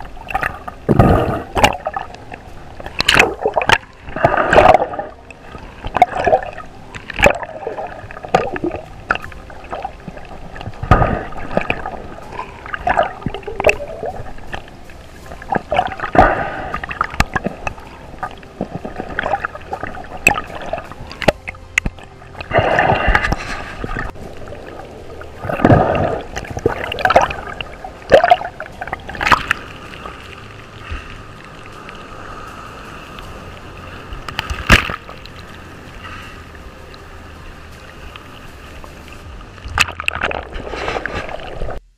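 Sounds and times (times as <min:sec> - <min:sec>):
underwater gurgling and bubbling: 0:00.0 - 0:41.9.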